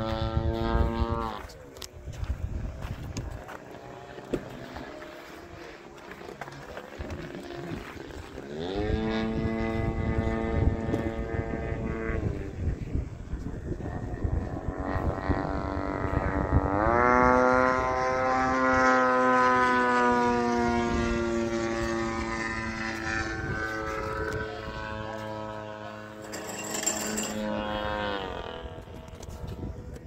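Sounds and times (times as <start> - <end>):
model airplane engine: 0.0 - 30.0.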